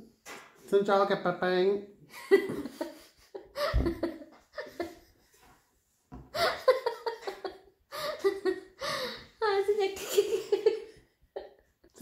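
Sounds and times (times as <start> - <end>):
woman laughing heartily: 2.1 - 5.6, 6.2 - 9.4, 10.0 - 12.0.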